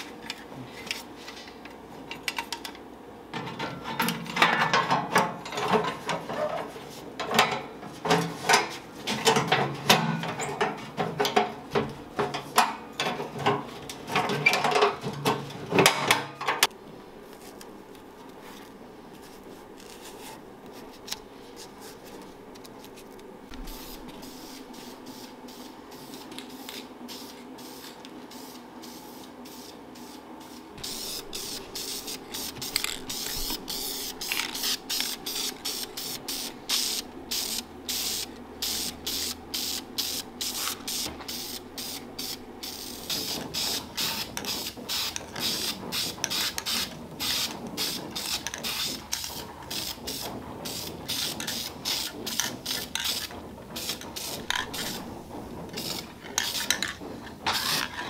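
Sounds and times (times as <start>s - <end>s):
aerosol spray paint hissing: 23.6s - 55.0s.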